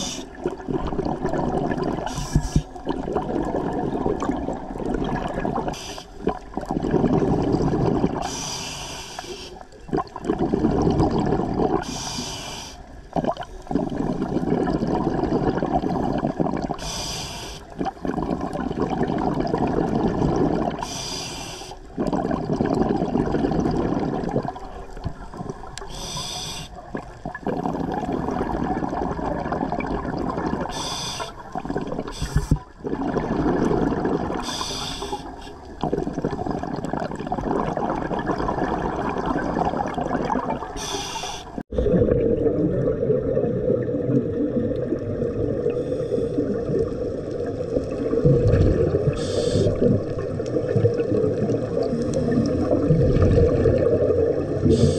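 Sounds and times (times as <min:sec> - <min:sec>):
burble of exhaled bubbles: 0:00.0 - 0:08.4, 0:09.6 - 0:12.0, 0:13.0 - 0:17.0, 0:17.6 - 0:21.0, 0:21.8 - 0:26.0, 0:26.7 - 0:41.0, 0:41.6 - 0:54.9
regulator hissing inhale: 0:02.1 - 0:02.7, 0:05.7 - 0:06.2, 0:08.2 - 0:09.6, 0:11.8 - 0:12.9, 0:16.8 - 0:17.7, 0:20.8 - 0:21.9, 0:25.8 - 0:26.8, 0:30.7 - 0:31.4, 0:32.1 - 0:32.6, 0:34.4 - 0:35.6, 0:40.8 - 0:41.6, 0:45.7 - 0:46.5, 0:49.1 - 0:49.9, 0:54.6 - 0:54.9.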